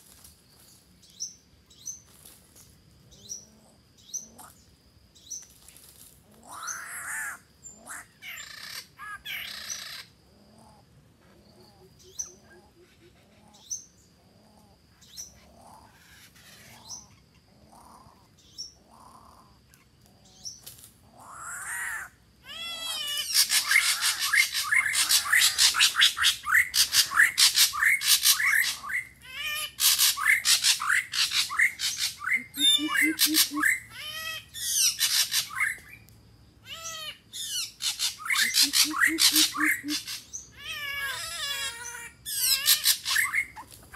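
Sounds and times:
harsh rapid bird squawking: 22.9s - 29.1s, 29.7s - 35.7s, 36.8s - 43.6s.

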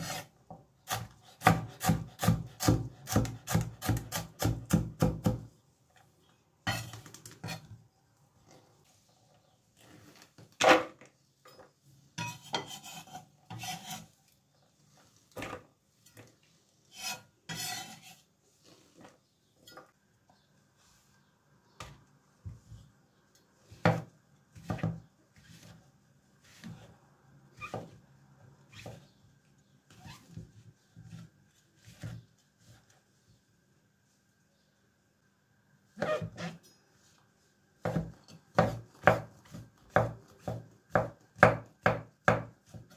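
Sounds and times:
knife scraping cutting board: 0.0s - 0.3s, 6.7s - 7.7s, 12.2s - 14.2s, 16.9s - 19.1s, 36.0s - 36.6s.

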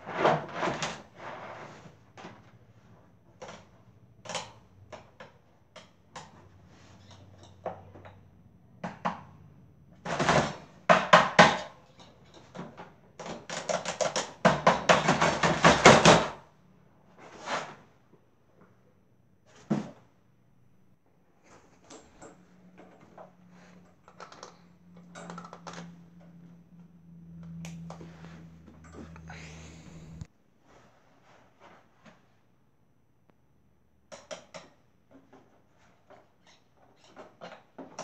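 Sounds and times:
plastic fan clicks and knocks: 8.8s - 16.3s.

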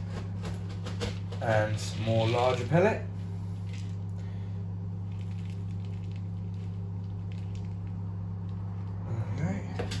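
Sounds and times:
steady low hum: 0.0s - 10.0s.

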